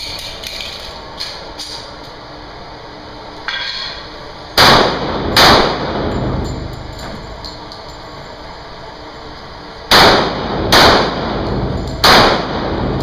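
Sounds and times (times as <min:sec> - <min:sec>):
handgun shots echoing indoors: 0:04.6 - 0:06.5, 0:09.9 - 0:13.0.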